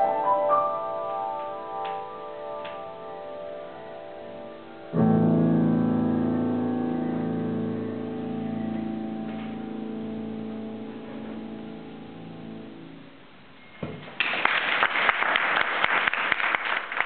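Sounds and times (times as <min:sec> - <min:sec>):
piano chord: 0:00.0 - 0:13.3
audience applause: 0:14.1 - 0:17.0.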